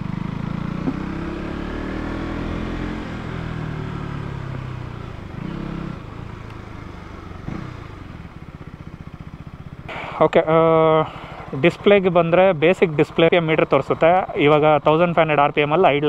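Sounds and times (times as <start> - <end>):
motorcycle engine running: 0.0 - 16.0.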